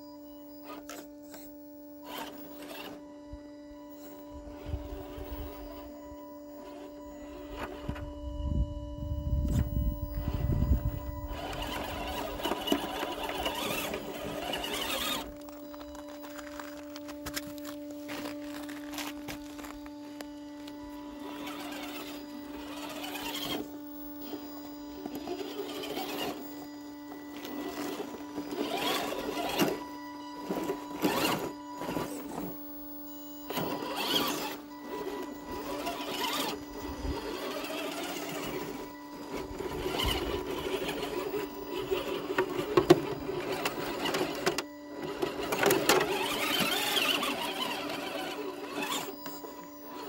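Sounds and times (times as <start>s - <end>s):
electric motor whining: 0.0s - 50.0s
faint steady tone: 0.0s - 50.0s
tyres scraping on stone: 11.4s - 20.2s.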